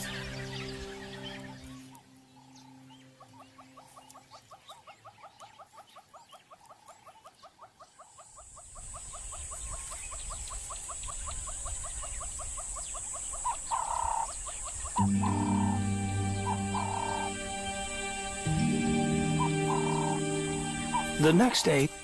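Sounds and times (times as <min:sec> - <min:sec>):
loud animal call: 0:15.0 - 0:21.7
steady high hiss: 0:15.0 - 0:22.0.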